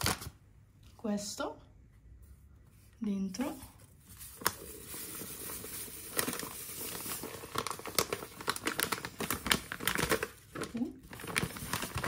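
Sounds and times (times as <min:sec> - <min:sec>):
bag crinkling and rustling: 0:03.8 - 0:12.0.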